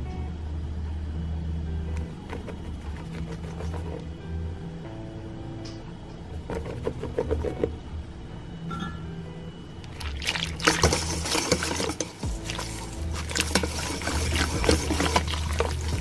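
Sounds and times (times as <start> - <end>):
whisk clicking in metal bowl: 2.0 - 4.0, 6.5 - 7.6, 10.4 - 16.0
wet sloshing: 9.8 - 16.0.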